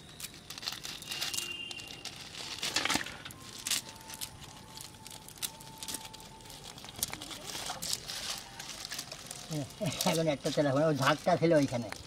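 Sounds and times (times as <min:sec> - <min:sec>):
wet fish handling crackles and clicks: 0:02.4 - 0:12.0.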